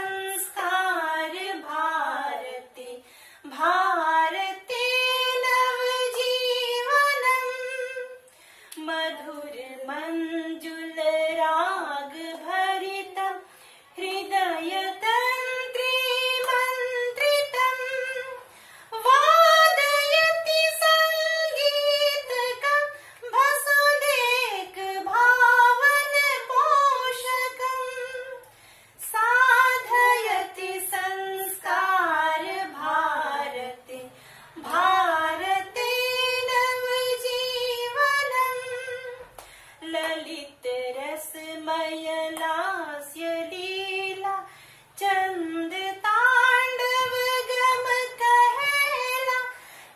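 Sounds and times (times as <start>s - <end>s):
high voice singing unaccompanied: 19.0s - 28.4s, 29.0s - 49.6s.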